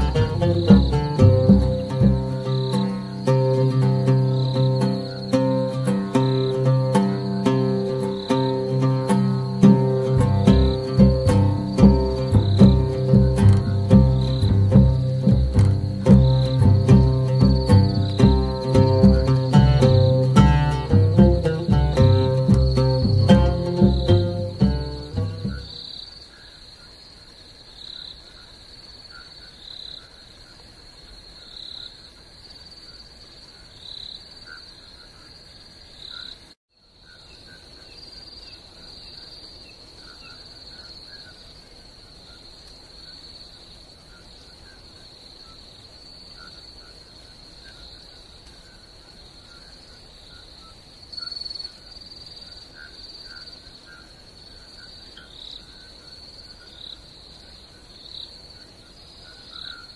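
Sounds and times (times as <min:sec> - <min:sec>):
crickets trilling: 0:00.0 - 0:59.9.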